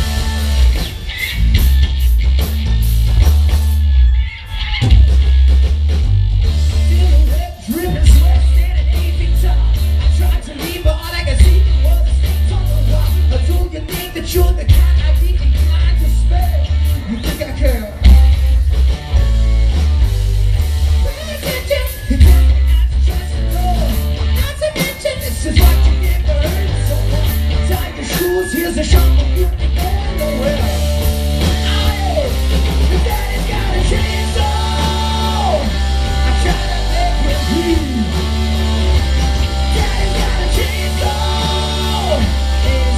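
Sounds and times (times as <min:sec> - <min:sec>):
bass guitar: 0:00.0 - 0:42.9
distorted electric guitars: 0:00.0 - 0:42.9
drums: 0:00.0 - 0:42.9
man singing lead vocals: 0:06.7 - 0:18.5, 0:21.0 - 0:42.9.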